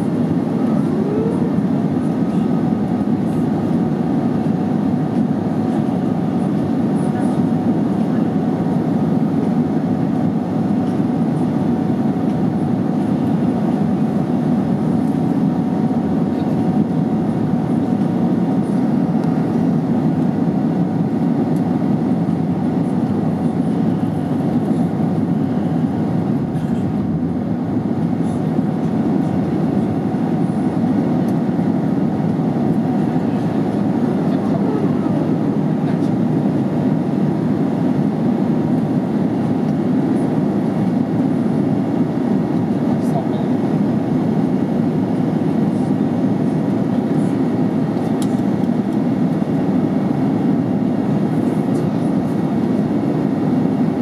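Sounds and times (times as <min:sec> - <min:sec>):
jet engine and air rush: 0:13.4 - 0:34.3.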